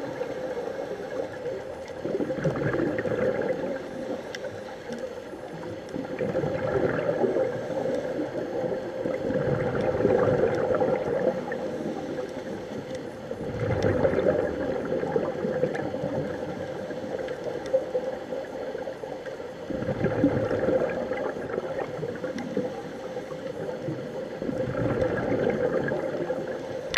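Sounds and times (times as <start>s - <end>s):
exhaled bubbles gurgling: 0.0s - 26.9s
steady hum: 0.0s - 26.9s
diver breathing through regulator: 11.4s - 12.9s.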